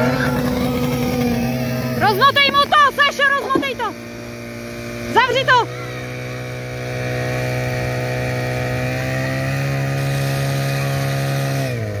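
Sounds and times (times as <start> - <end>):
pump engine running at high revs: 0.0 - 12.0.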